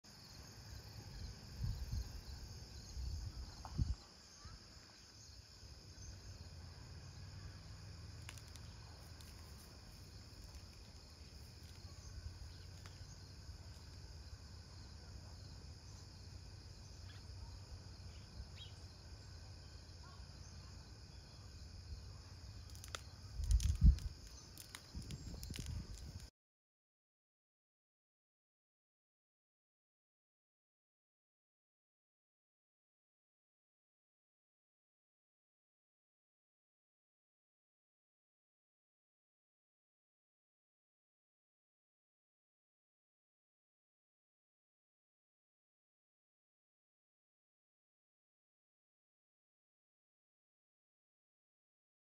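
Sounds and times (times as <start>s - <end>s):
insects chirping: 0.1s - 26.3s.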